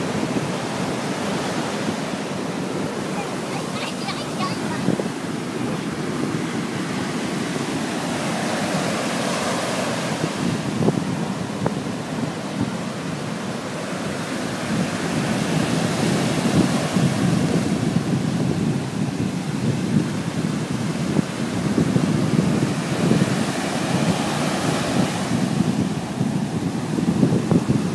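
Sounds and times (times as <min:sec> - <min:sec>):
heavy surf breaking: 0:00.0 - 0:27.9
wind buffeting microphone: 0:00.0 - 0:27.9.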